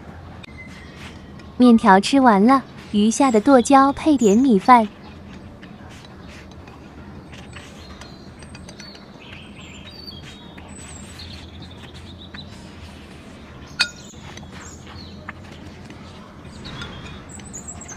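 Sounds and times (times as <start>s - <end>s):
small birds chirping: 0.4s - 17.9s
chopsticks scraping a ceramic plate: 2.6s - 17.9s
sharp clink: 13.8s - 14.1s.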